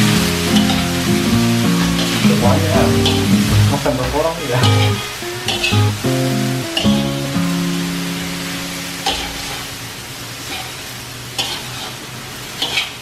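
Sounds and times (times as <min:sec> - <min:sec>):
food sizzling in a wok: 0:00.0 - 0:13.0
low held note: 0:01.4 - 0:09.6
metal spatula scraping wok: 0:11.4 - 0:12.0.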